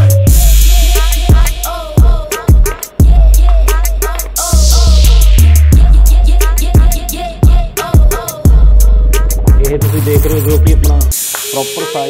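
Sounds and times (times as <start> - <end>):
deep bass notes: 0.0 - 2.1, 3.0 - 7.7, 8.5 - 11.2
heavy kick drum: 0.0 - 11.2
hip-hop music: 0.0 - 12.0.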